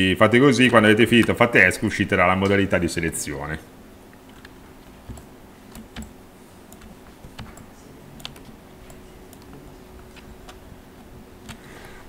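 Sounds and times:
faint steady hum: 0.0s - 12.0s
keyboard and mouse clicks: 4.2s - 10.6s, 11.4s - 11.6s.

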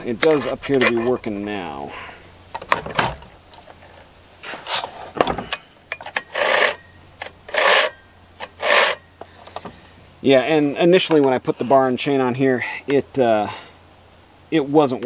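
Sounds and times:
chainsaw chain scraping on bar: 4.4s - 9.1s.

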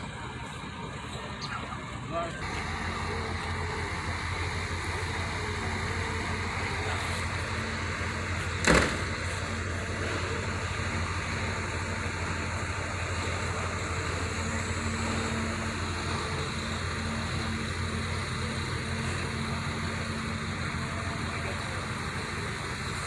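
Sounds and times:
excavator diesel engine running: 0.0s - 23.0s
sharp knock: 8.6s - 9.1s.

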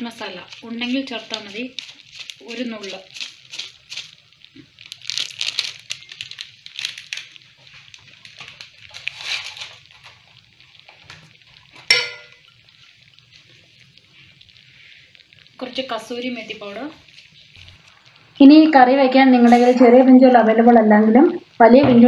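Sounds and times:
thick curry bubbling and spluttering: 0.0s - 18.5s
sharp metal clink: 19.4s - 19.9s.

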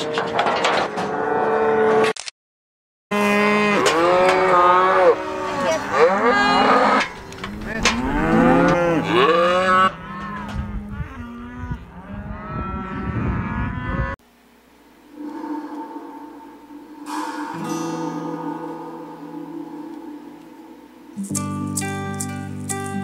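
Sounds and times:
cattle bawling and mooing: 3.2s - 14.2s.

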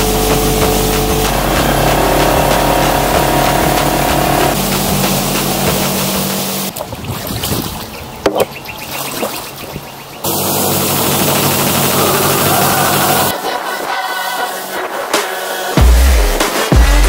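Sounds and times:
outboard motor running: 0.0s - 13.3s
water rushing past hull: 0.0s - 14.8s.

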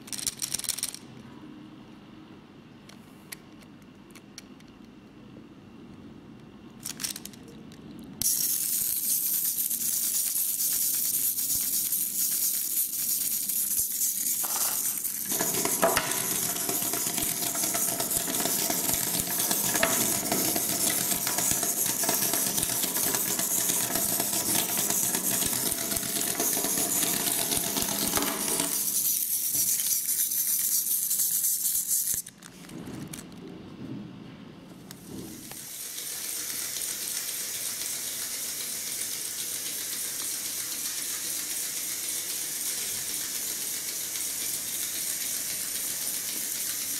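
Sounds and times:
toy motor buzzing and rattling: 0.0s - 1.0s, 6.8s - 7.3s, 8.2s - 32.4s, 35.5s - 46.9s.

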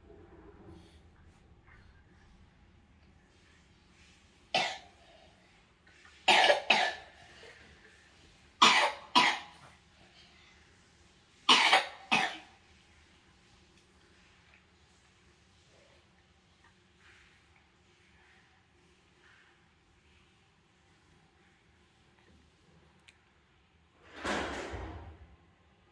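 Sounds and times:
person coughing: 6.3s - 7.5s, 8.6s - 9.5s, 11.5s - 12.5s.

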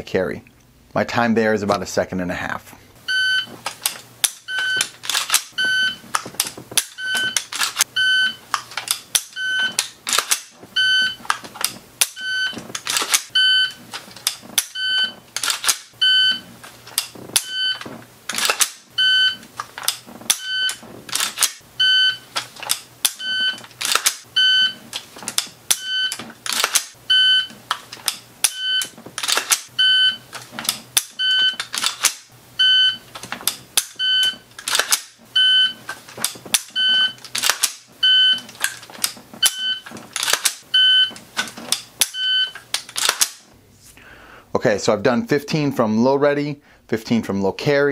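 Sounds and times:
shot timer beeping: 3.1s - 3.5s, 4.2s - 6.0s, 6.8s - 8.4s, 9.2s - 9.8s, 12.0s - 12.6s, 13.3s - 13.8s, 17.4s - 17.8s, 19.0s - 19.4s, 21.8s - 22.3s, 25.7s - 26.2s, 27.1s - 27.5s, 33.9s - 34.4s, 39.4s - 39.8s, 40.7s - 41.1s, 42.0s - 42.6s
charging handle being racked: 3.6s - 7.9s, 8.5s - 24.3s, 24.9s - 32.3s, 33.1s - 43.4s.

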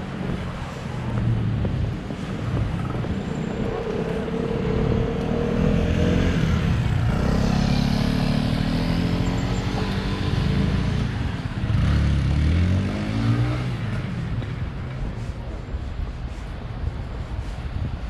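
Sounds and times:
passing vehicle engine: 2.8s - 15.4s.

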